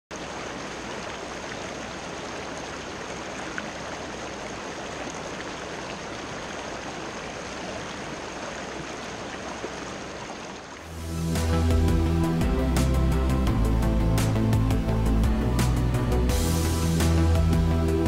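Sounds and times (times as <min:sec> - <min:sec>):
river water rushing over rocks: 0:00.1 - 0:11.0.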